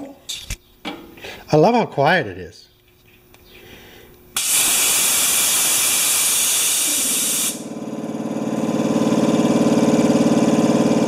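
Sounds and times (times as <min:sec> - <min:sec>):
compressed air hissing: 0:04.4 - 0:07.7
air compressor motor pulsing: 0:04.4 - 0:11.0.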